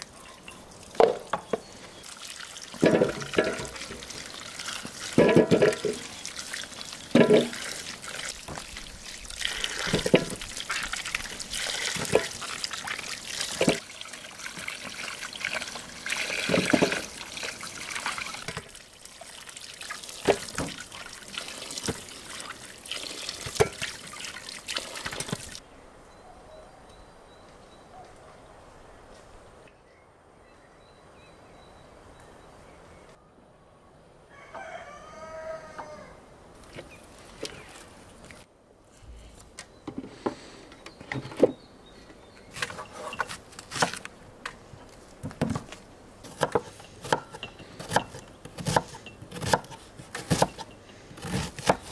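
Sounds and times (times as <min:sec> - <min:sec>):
running water pouring: 0:00.0 - 0:25.6
faint outdoor ambience: 0:00.0 - 0:51.9.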